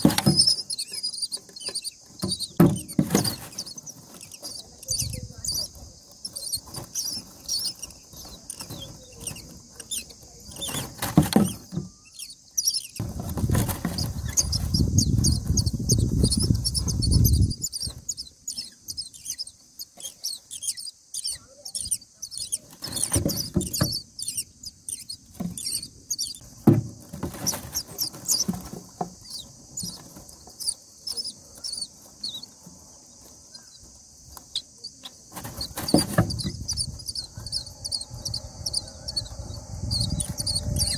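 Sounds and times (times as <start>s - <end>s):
nestlings squeaky begging calls: 0.0s - 26.5s, 27.5s - 32.6s, 33.5s - 40.9s
low rumbling noise: 37.1s - 40.9s.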